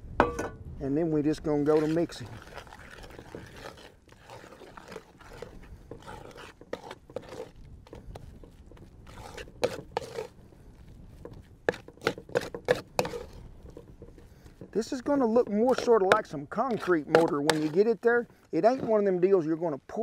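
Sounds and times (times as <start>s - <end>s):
spoon scraping dough in bowl: 1.3s - 10.4s, 11.2s - 19.2s.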